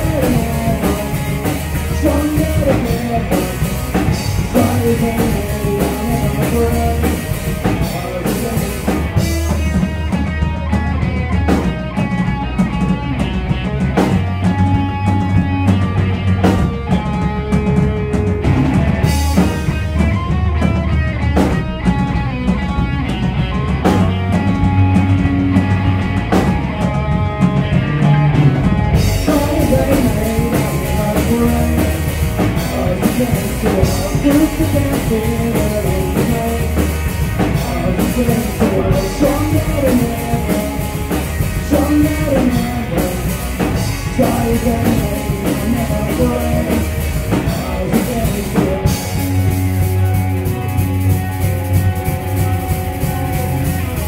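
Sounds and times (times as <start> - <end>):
person singing: 0.0 - 10.4, 21.9 - 54.0
drum kit: 0.0 - 54.0
electric bass: 0.0 - 54.0
electric guitar: 0.0 - 54.0.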